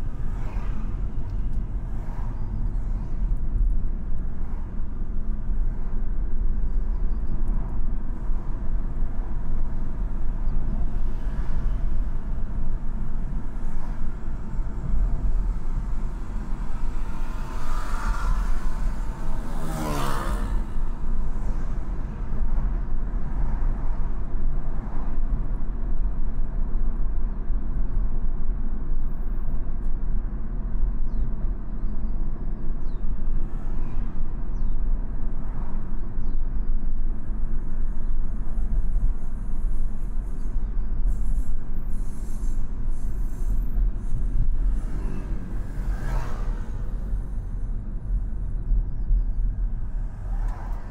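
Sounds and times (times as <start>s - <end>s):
tyre and road noise: 0.0s - 50.9s
scooter engine passing: 17.2s - 20.8s.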